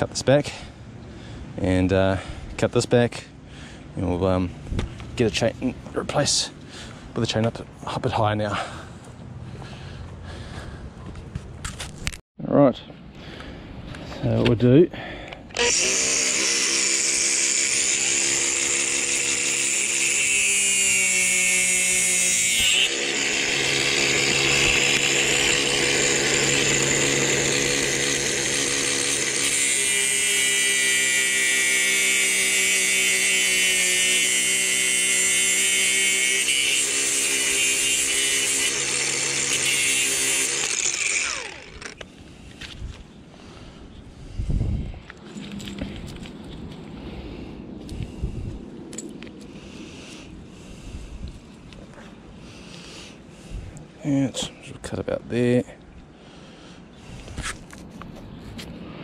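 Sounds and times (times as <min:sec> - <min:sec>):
angle grinder cutting: 0:15.5 - 0:42.1.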